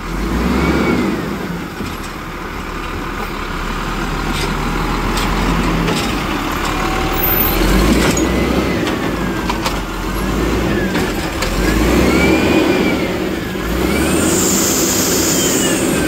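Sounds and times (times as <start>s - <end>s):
garbage truck engine running: 0.0s - 16.0s
hydraulic whine: 11.6s - 16.0s.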